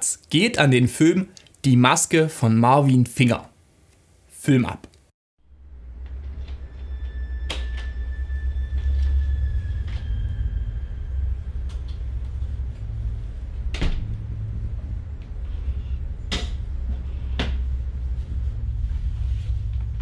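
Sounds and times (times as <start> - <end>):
low droning rumble: 5.4 - 20.0.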